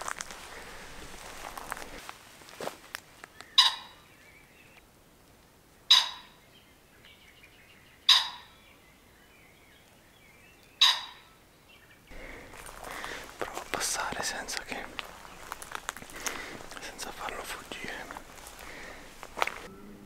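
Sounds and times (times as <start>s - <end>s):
faint birdsong: 2.8s - 20.0s
pheasant harsh calls: 3.5s - 4.2s, 5.9s - 6.4s, 8.0s - 8.7s, 10.8s - 11.4s.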